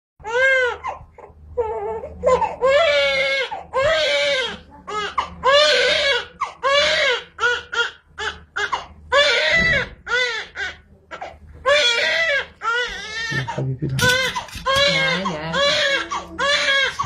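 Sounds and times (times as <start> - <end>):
newborn baby crying: 0.2 - 17.0.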